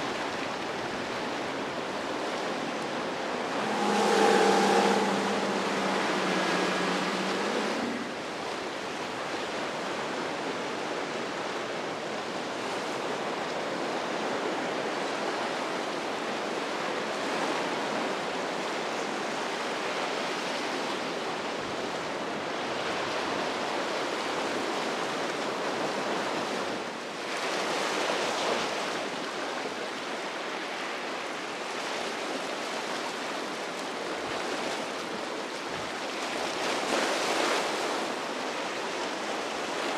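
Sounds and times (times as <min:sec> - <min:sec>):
waves washing: 0:00.0 - 0:10.3
boat engine hum: 0:00.1 - 0:11.1
wave breaking: 0:02.6 - 0:09.1.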